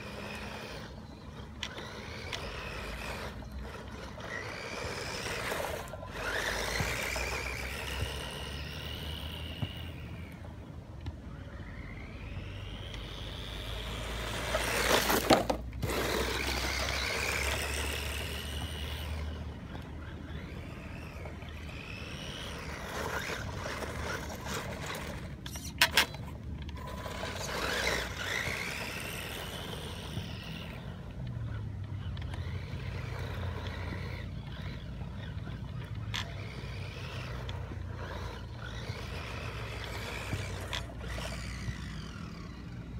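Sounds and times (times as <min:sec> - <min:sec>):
toy car electric motor whining: 0:00.0 - 0:42.9.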